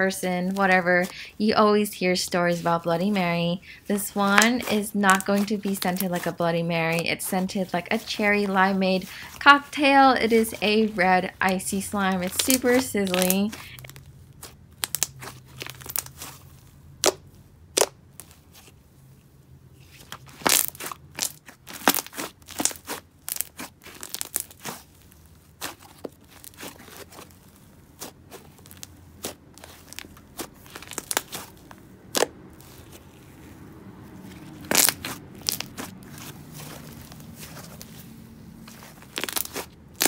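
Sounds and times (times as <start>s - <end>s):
slime crackling and popping: 4.3s - 7.0s, 12.1s - 16.4s, 17.0s - 18.4s, 20.2s - 33.5s, 34.5s - 38.0s, 38.7s - 40.0s.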